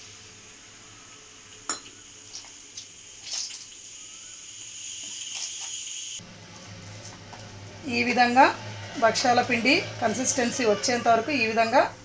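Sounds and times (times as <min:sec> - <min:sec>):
steady hiss: 0:00.0 - 0:06.2.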